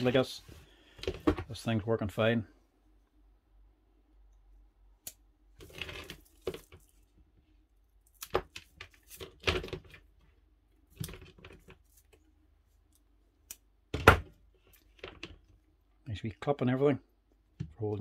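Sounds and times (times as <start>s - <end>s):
rustling and scraping of cable and plastic: 0.0s - 1.5s, 5.6s - 13.0s, 14.4s - 15.6s.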